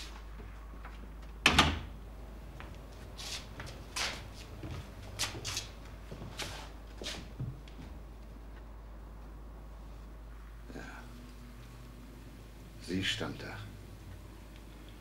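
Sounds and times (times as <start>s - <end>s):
people shifting on floor: 2.6s - 8.6s.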